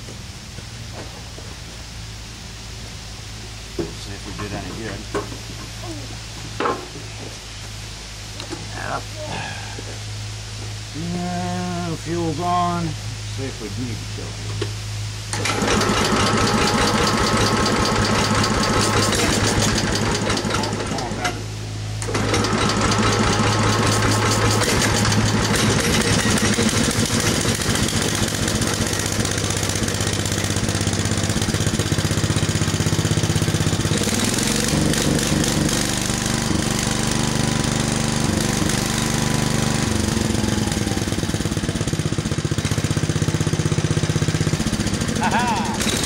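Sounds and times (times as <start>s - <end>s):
small tractor engine running: 15.3s - 46.0s.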